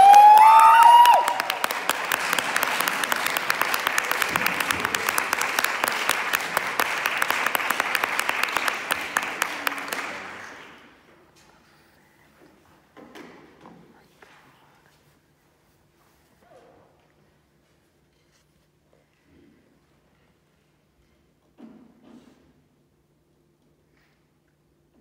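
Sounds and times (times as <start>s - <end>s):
loud high cheer: 0.0s - 10.4s
audience applauding: 0.0s - 11.0s.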